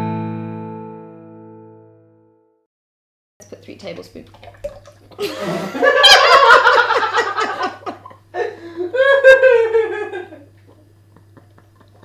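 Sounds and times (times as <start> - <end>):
women laughing: 5.2 - 12.0.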